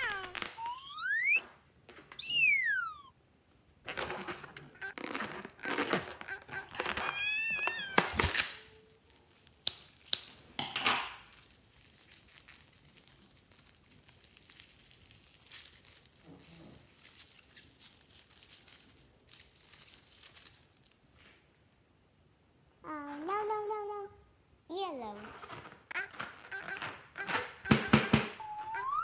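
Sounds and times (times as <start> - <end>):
foam squishing and crackling: 0.0 - 3.0, 3.8 - 21.0, 25.0 - 29.0
scissors cutting rubber balloon: 3.9 - 8.8, 25.2 - 28.5.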